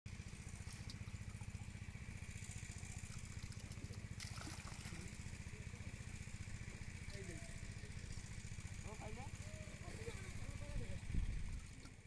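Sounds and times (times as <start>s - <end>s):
small engine puttering: 0.1s - 12.0s
hands splashing in muddy water: 3.0s - 5.3s.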